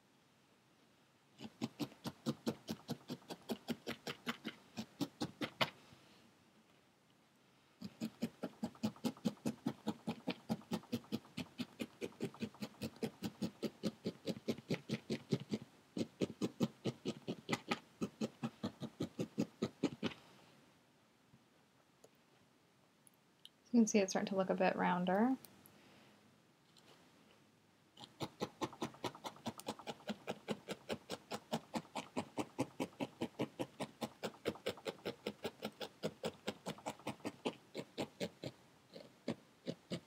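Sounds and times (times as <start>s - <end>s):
felting needle stabbing wool: 1.4s - 5.8s, 7.9s - 20.2s.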